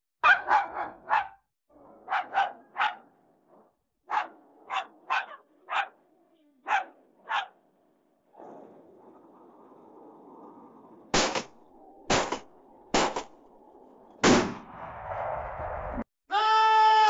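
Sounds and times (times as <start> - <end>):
dog barking: 0.2 - 3.2, 4.0 - 7.7.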